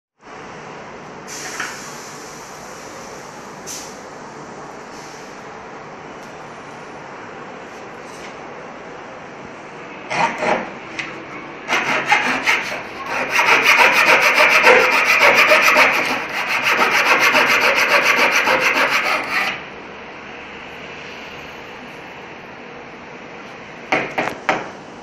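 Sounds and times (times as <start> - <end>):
hand saw cutting wood: 10.1 - 10.7, 11.7 - 19.6.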